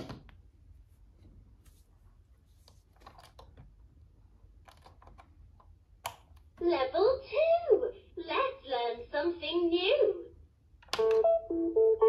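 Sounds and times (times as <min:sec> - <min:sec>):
hands handling plastic toy: 0:01.2 - 0:03.8.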